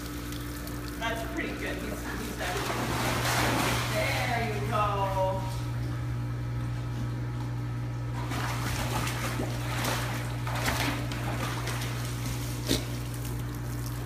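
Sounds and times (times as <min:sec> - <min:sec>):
water splashing and sloshing: 0:00.0 - 0:06.0, 0:06.6 - 0:14.0
steady low hum: 0:00.0 - 0:14.0.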